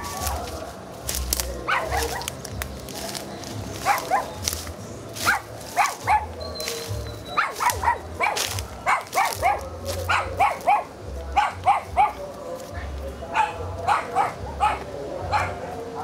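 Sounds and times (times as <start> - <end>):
dog barking: 1.7 - 2.4, 3.8 - 4.3, 5.2 - 6.3, 7.4 - 12.7, 13.3 - 16.0.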